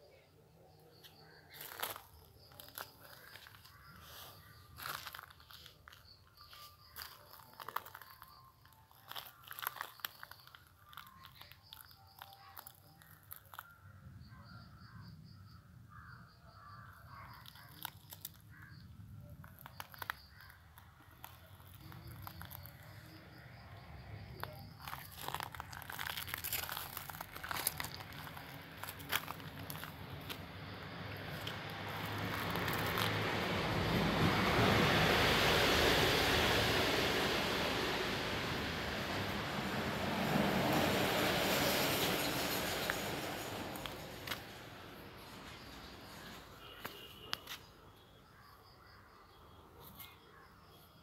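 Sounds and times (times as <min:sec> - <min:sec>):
crunching and clicking: 0:01.0 - 0:13.8, 0:17.1 - 0:23.2, 0:24.2 - 0:33.4.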